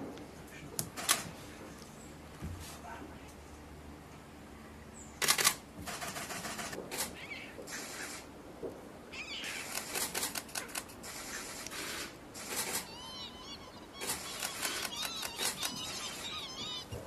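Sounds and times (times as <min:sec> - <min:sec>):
loud harsh burst: 0:11.0 - 0:12.9.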